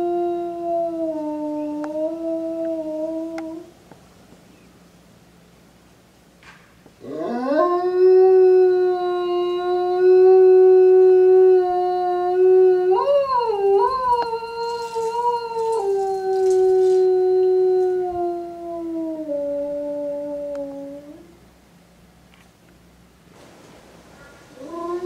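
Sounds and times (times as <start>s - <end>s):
wolf howling: 7.0s - 21.3s, 24.6s - 25.0s.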